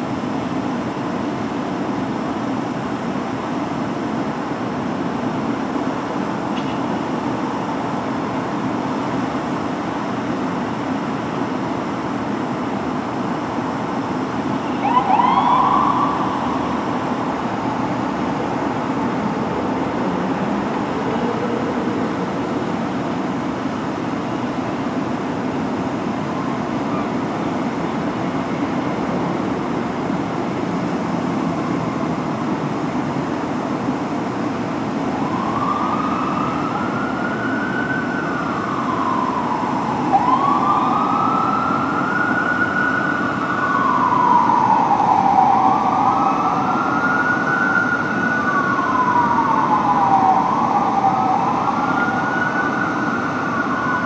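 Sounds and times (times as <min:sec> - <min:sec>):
city background noise: 0:00.0 - 0:54.0
fire truck siren whoop: 0:12.9 - 0:30.1, 0:34.8 - 0:54.0
siren wails: 0:13.5 - 0:29.4, 0:34.9 - 0:54.0.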